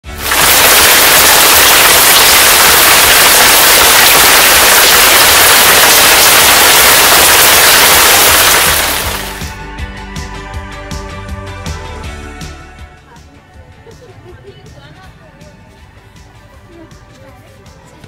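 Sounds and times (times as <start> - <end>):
loud steady rushing noise: 0.1 - 9.5.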